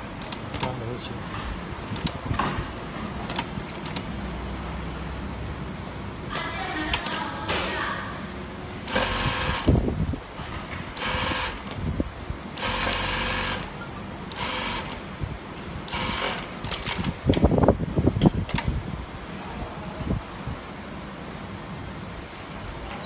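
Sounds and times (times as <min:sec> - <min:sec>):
industrial sewing machine running: 0:08.9 - 0:09.7, 0:11.0 - 0:11.7, 0:12.6 - 0:15.0, 0:15.9 - 0:16.5.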